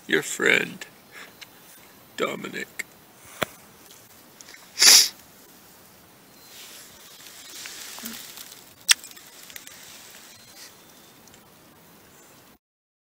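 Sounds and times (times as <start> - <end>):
rustling against microphone: 6.4 - 11.4.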